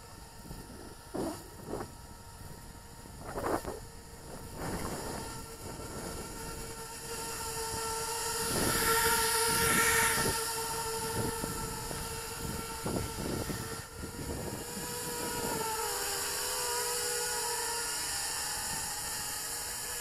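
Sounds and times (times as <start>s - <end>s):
drone motors whining: 0.0s - 20.0s.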